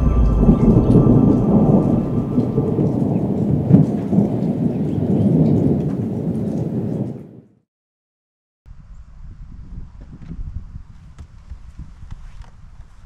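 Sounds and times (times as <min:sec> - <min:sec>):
low rumble: 0:00.0 - 0:05.0
rain-like noise: 0:00.0 - 0:07.4.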